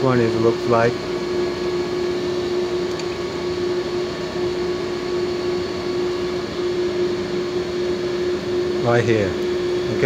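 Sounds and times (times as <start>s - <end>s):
machine hum with whir: 0.0s - 10.0s.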